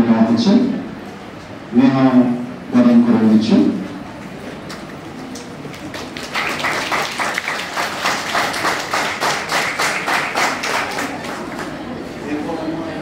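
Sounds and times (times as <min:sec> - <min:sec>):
group applauding: 0:04.6 - 0:12.0.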